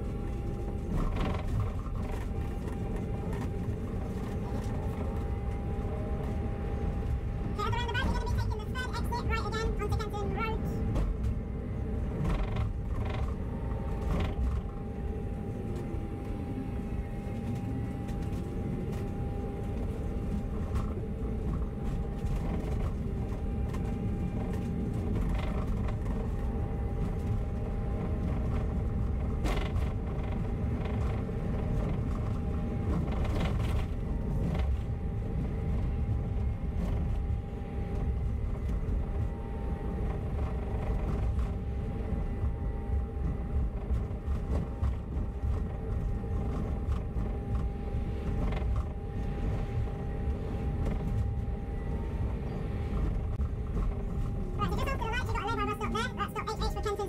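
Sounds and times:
bus body creaks and rattles: 0.0s - 10.2s, 10.8s - 51.7s
bus engine drone: 0.0s - 57.0s
drivetrain whine: 0.0s - 57.0s.

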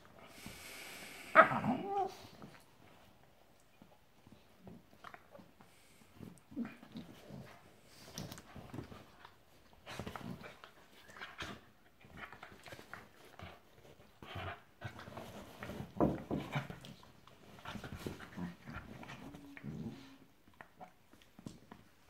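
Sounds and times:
dogs growling: 18.1s - 20.3s.

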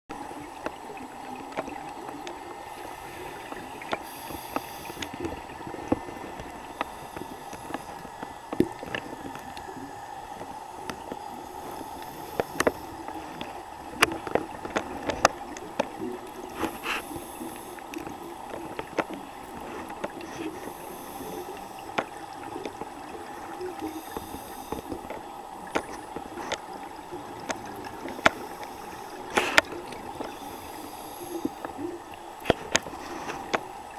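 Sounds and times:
steady underwater hum: 0.1s - 33.9s
regulator breath hiss: 2.7s - 5.2s, 6.6s - 8.2s, 11.5s - 13.4s, 16.5s - 18.0s, 20.2s - 22.0s, 23.8s - 25.0s, 30.3s - 31.7s.

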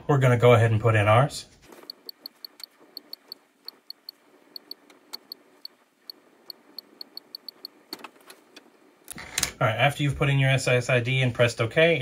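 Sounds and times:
high key-press ticks: 1.9s - 7.8s.

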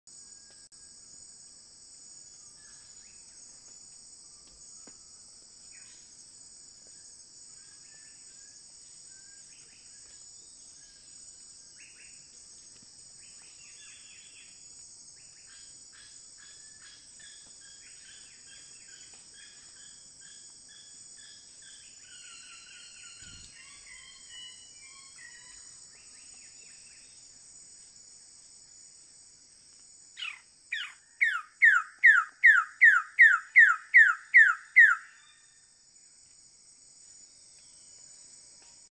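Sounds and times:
high-pitched insect chorus: 0.1s - 38.9s
faint bird calls: 30.2s - 35.4s.

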